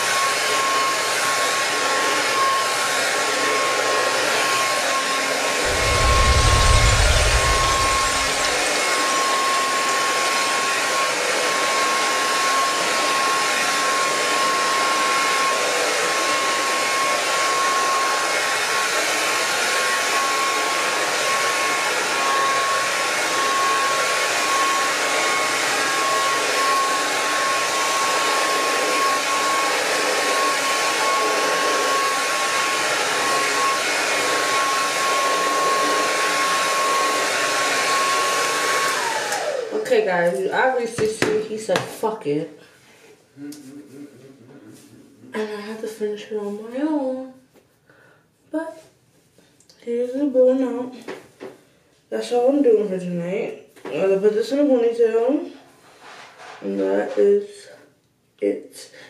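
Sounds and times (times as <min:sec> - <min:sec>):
hair dryer running: 0:00.0 - 0:42.1.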